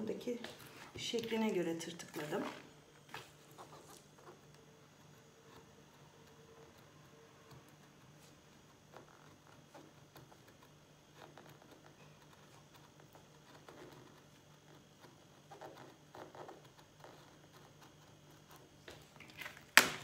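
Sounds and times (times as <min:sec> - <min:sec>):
craft knife scratching paper: 0:03.2 - 0:19.2.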